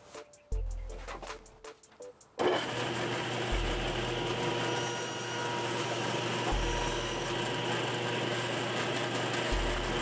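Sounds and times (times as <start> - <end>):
table saw cutting wood: 2.4 - 10.0.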